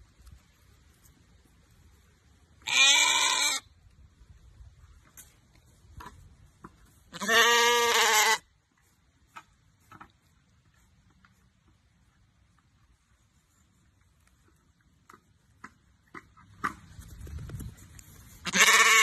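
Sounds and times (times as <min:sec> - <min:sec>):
sheep bleating: 0:02.6 - 0:03.6, 0:07.1 - 0:08.4, 0:18.5 - 0:19.0.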